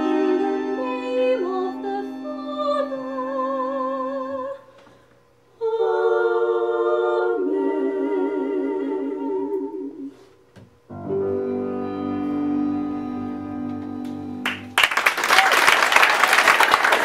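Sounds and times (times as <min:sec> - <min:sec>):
vocal ensemble singing in harmony: 0:00.0 - 0:04.7, 0:05.6 - 0:10.4.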